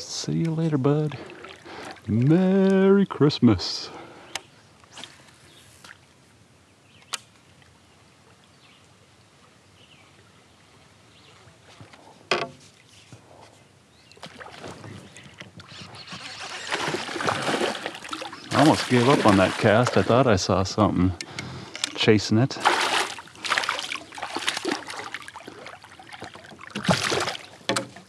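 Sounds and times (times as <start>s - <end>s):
open water ambience: 0.0s - 28.0s
water splashing: 0.4s - 2.8s, 14.2s - 28.0s.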